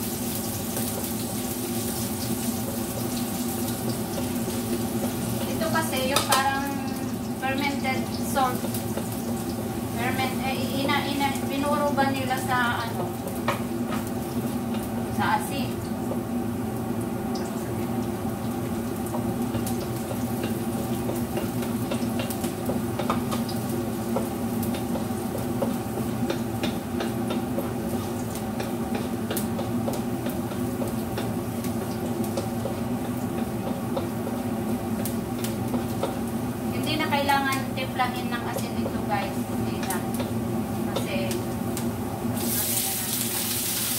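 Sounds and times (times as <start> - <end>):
squid sizzling in a wok: 0.0 - 43.9.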